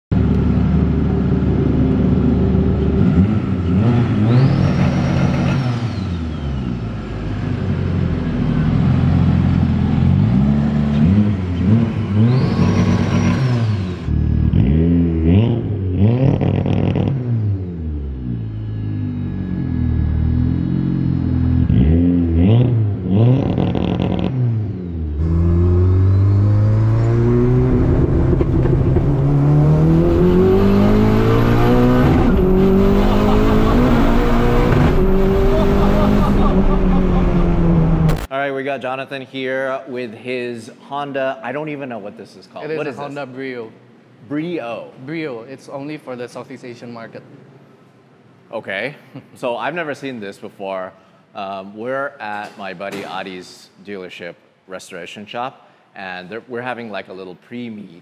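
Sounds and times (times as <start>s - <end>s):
car engine revving: 0.2s - 38.3s.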